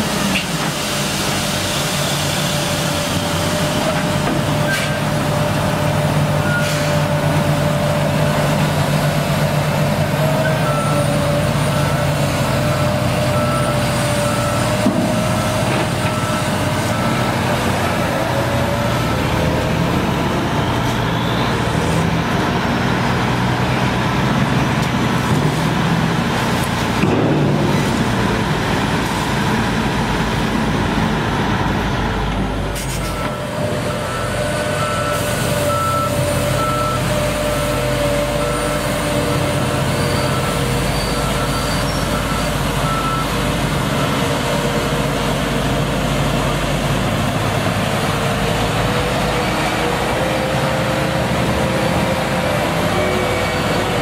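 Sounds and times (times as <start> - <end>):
dozer diesel engine running: 0.0 - 54.0
reversing alarm beeping: 10.4 - 17.5, 33.1 - 44.4.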